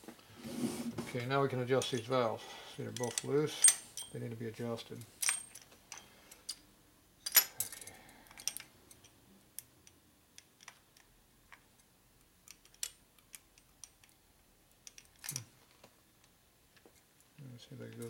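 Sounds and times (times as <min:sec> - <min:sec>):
light metallic clicks and clinks: 0:02.9 - 0:04.2, 0:05.2 - 0:06.6, 0:07.2 - 0:09.2.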